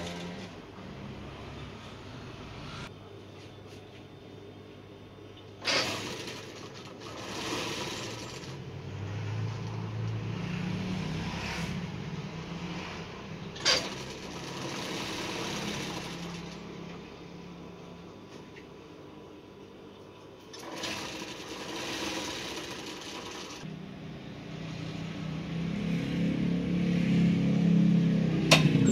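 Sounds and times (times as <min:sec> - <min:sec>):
sewing machine motor hum: 0:00.0 - 0:02.9, 0:05.6 - 0:11.1, 0:13.6 - 0:17.6, 0:20.5 - 0:23.7.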